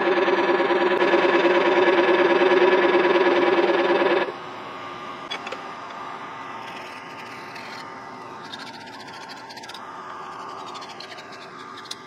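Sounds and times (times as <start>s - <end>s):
low background hum: 0.0s - 12.0s
scratchy rustling of metal part: 6.6s - 12.0s.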